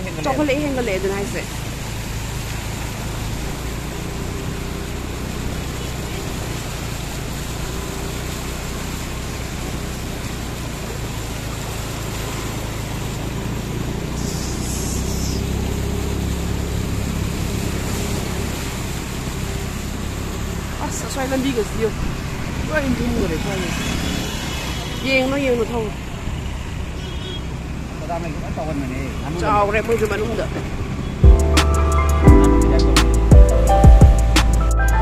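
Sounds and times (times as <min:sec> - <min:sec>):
low engine hum: 0:00.0 - 0:24.5
water rushing and splashing: 0:00.0 - 0:35.0.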